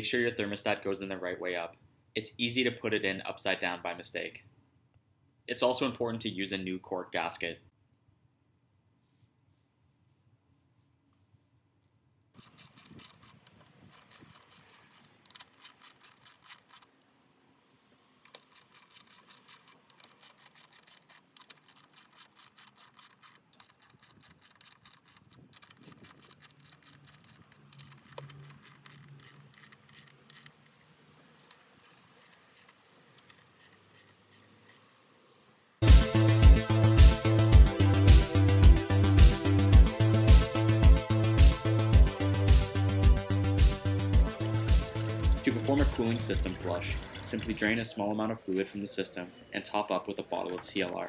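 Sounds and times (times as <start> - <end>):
socket ratchet clicking: 12.4 - 17.0, 18.1 - 35.0.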